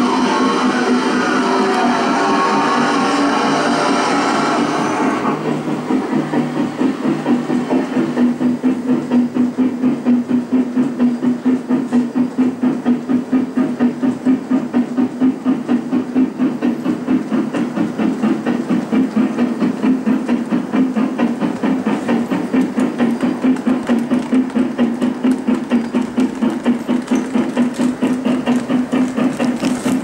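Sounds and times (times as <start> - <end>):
model locomotive engine beat: 0.0 - 30.0.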